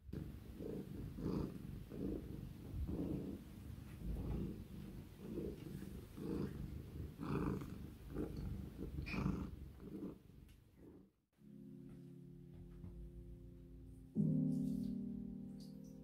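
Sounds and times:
cat purring: 0.0 - 11.2.

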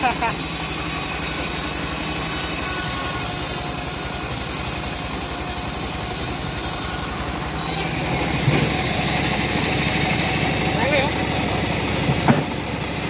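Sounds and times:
bandsaw mill drive running: 0.0 - 13.0.

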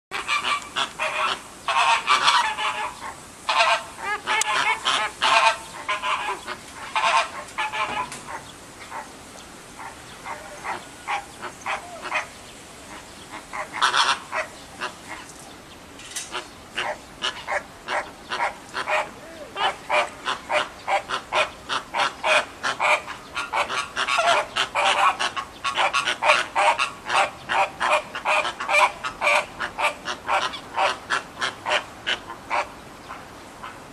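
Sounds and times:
flamingos honking: 0.1 - 9.1, 9.7 - 15.3, 16.3 - 32.7.

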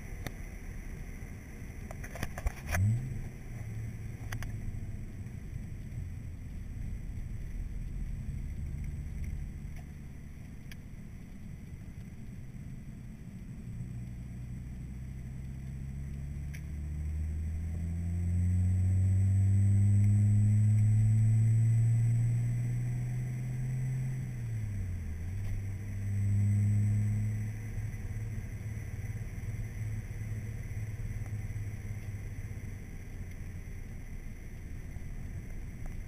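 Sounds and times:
road noise: 0.0 - 36.0
car engine revving: 14.1 - 32.6.

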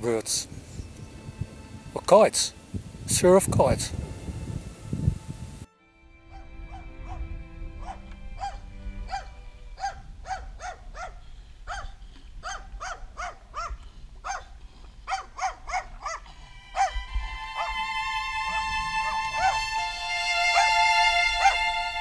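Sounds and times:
dog yapping: 7.8 - 17.0, 21.4 - 21.6.

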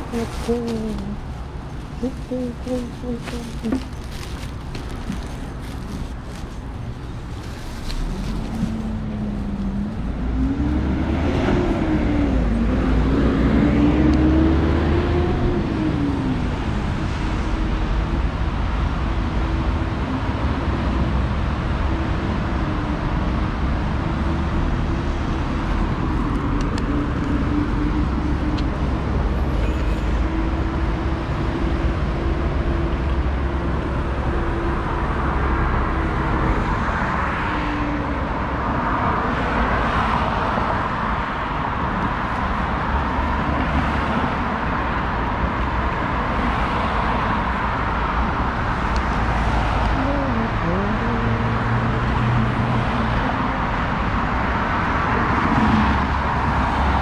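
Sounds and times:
constant low rumble: 0.0 - 10.4.

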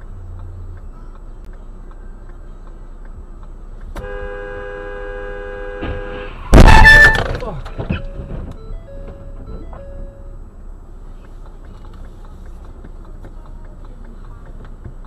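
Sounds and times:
low road noise: 0.0 - 15.0
car horn sounding: 3.9 - 8.2
loud car crash: 5.8 - 8.5.

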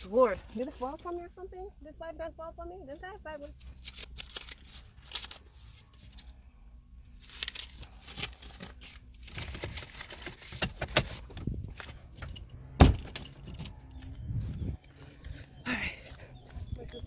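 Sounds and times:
rustling handling noises: 0.0 - 1.5, 3.0 - 6.5, 7.1 - 12.5.

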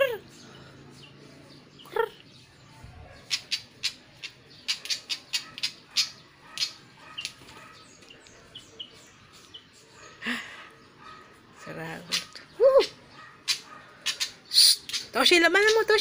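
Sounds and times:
bird chirps: 0.0 - 16.0
bird scolding calls: 3.1 - 8.9, 11.8 - 16.0.

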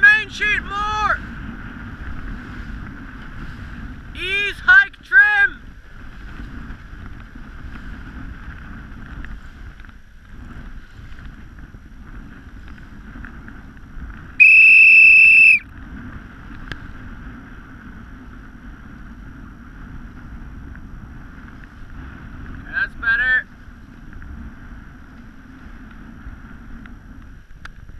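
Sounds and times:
wind: 0.0 - 27.9
whistle blast: 14.4 - 15.6.

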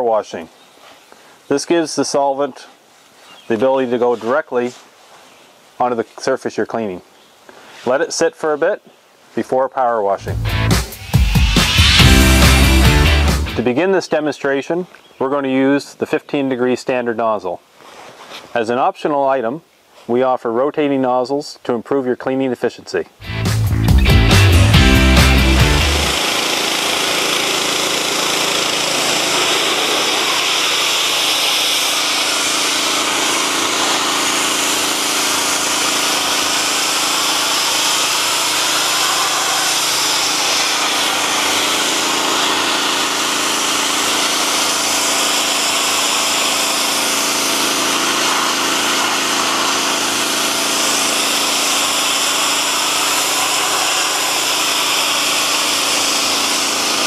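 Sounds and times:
engine running: 10.2 - 13.6, 23.2 - 57.0
pressure washer jet hissing on steel: 24.0 - 57.0.

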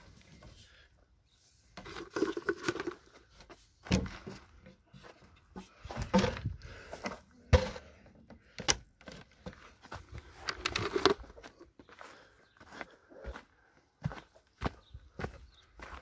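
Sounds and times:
footsteps scuffing on grit: 11.2 - 16.0.

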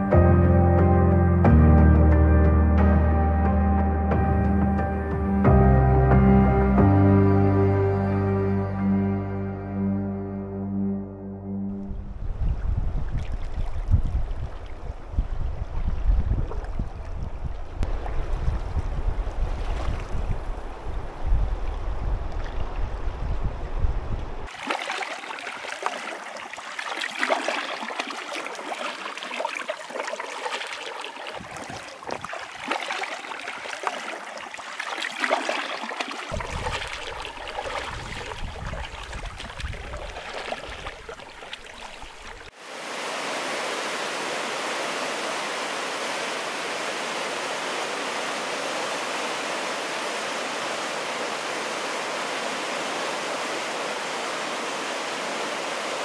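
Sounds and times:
paddle strokes in water: 12.6 - 23.2, 24.2 - 51.9
water splashing around raft: 12.9 - 23.4, 24.4 - 56.0
river rushing: 24.4 - 56.0.

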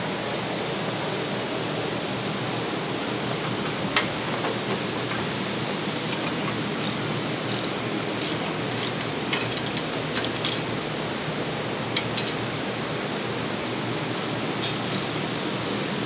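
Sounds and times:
hand tools clicking on metal: 6.0 - 10.7, 14.6 - 15.2.

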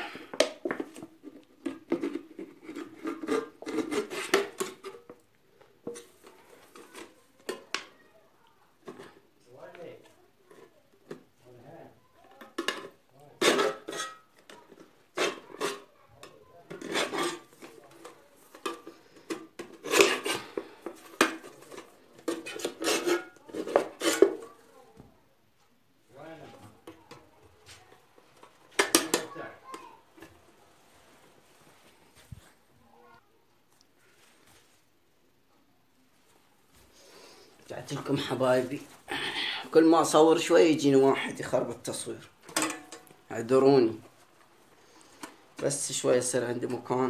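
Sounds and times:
knife scraping metal lid: 1.9 - 5.1, 13.4 - 14.5, 16.7 - 17.7, 18.6 - 24.5.

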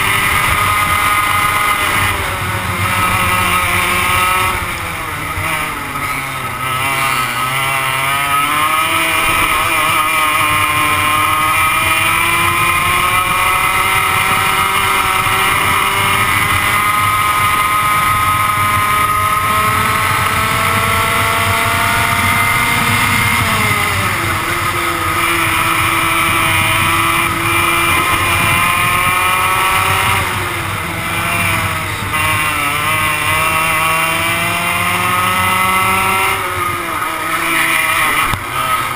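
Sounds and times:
two-stroke go-kart engine racing: 0.0 - 38.9.

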